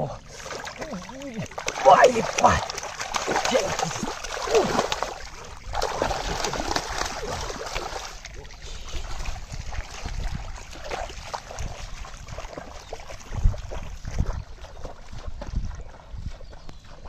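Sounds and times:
wading steps sloshing: 0:00.0 - 0:17.0
fish thrashing and splashing: 0:00.2 - 0:15.0.

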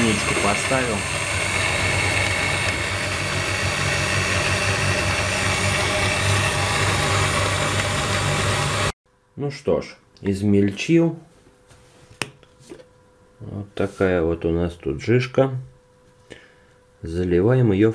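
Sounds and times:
blender motor whirring: 0:00.0 - 0:09.0.

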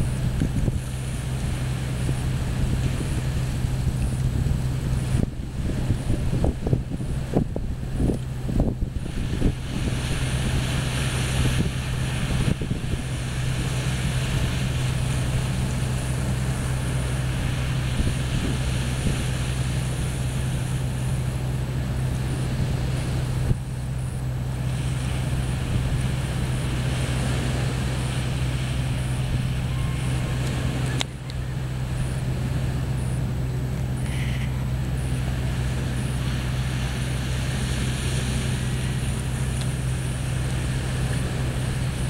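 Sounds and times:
small waves washing onto beach: 0:00.0 - 0:42.0
steady low hum: 0:00.0 - 0:42.0
wind rumbling on microphone: 0:00.0 - 0:42.0.

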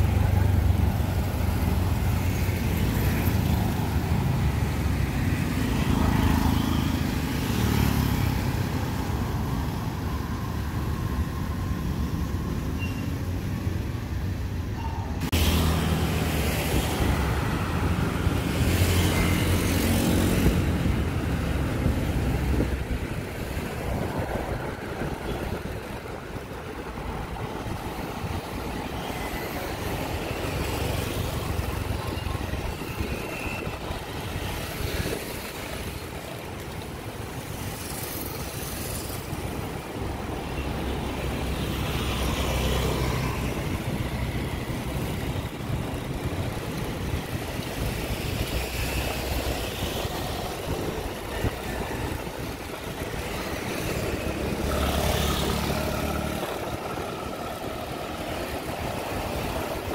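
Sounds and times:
road traffic: 0:00.0 - 0:59.9.

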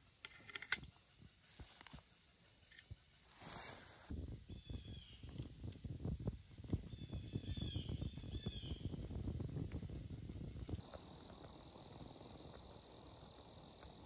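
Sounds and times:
low crackling rumble: 0:03.3 - 0:14.0
birds chirping: 0:04.4 - 0:14.0
insect trill: 0:06.0 - 0:14.0.

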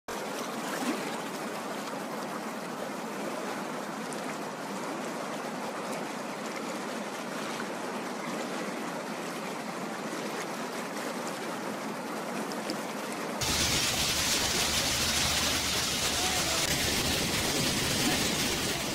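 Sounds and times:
water rushing along boat hull: 0:00.1 - 0:18.9.

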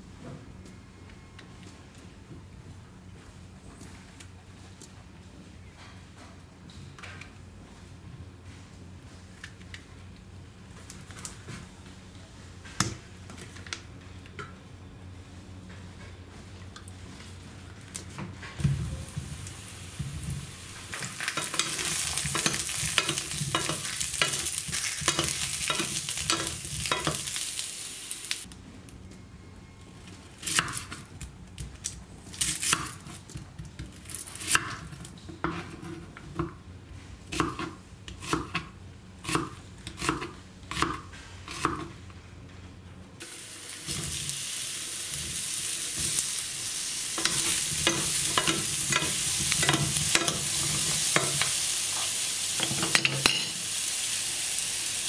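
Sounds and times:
oil sizzling in frying pan: 0:19.1 - 0:28.5, 0:43.2 - 0:55.0
knife chopping onion on board: 0:37.3 - 0:41.9.

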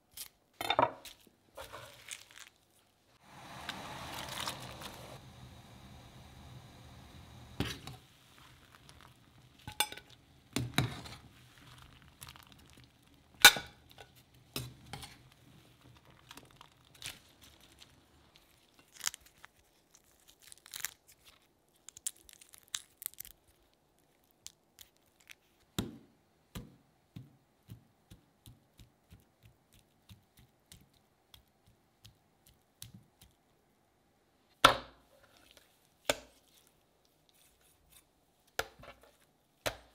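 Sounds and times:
shrimp shells cracking: 0:16.0 - 0:23.4.

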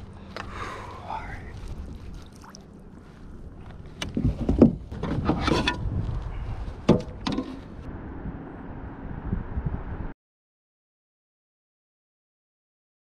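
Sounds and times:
low rumble: 0:00.0 - 0:10.2
thumps: 0:06.8 - 0:07.7.

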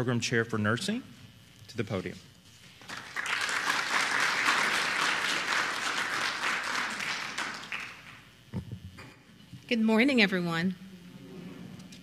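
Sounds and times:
audience applauding: 0:02.8 - 0:08.3.

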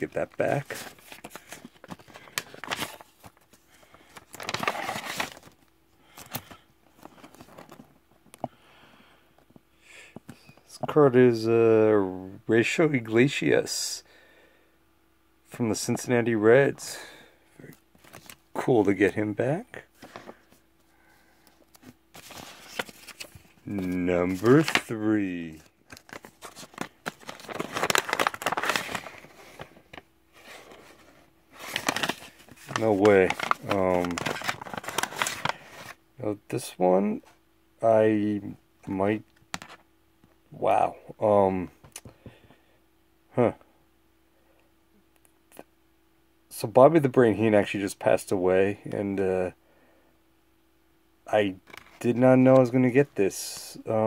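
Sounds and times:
paper envelope rustling: 0:00.0 - 0:07.9, 0:18.0 - 0:18.4, 0:19.9 - 0:20.6, 0:21.5 - 0:36.0
plastic sleeves crinkling: 0:00.0 - 0:08.4, 0:17.6 - 0:20.6, 0:21.5 - 0:36.0.

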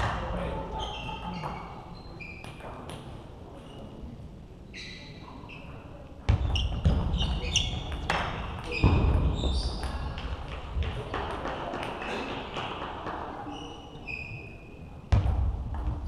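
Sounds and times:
shoe squeaks on floor: 0:00.7 - 0:02.7, 0:04.7 - 0:05.8, 0:06.4 - 0:09.9, 0:13.5 - 0:14.8.

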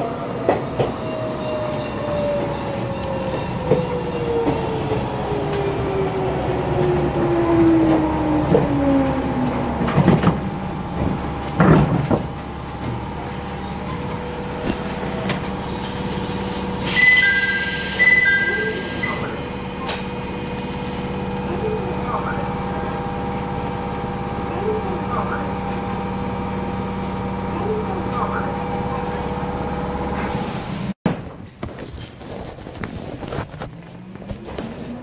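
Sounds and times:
train knocks: 0:09.8 - 0:13.2.

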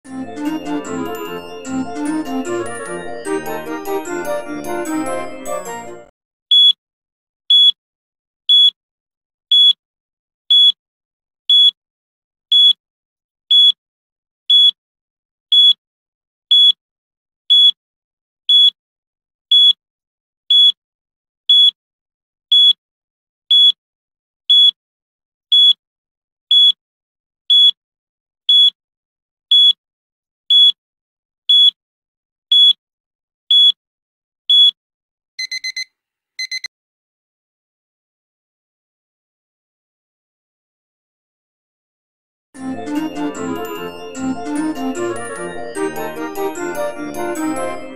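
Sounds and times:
timer high-pitched beeps: 0:06.5 - 0:06.8, 0:07.5 - 0:07.8, 0:08.5 - 0:08.8, 0:09.5 - 0:09.8, 0:10.5 - 0:10.8, 0:11.5 - 0:11.8, 0:14.5 - 0:14.8, 0:33.5 - 0:33.8, 0:34.5 - 0:34.8, 0:35.4 - 0:36.7.

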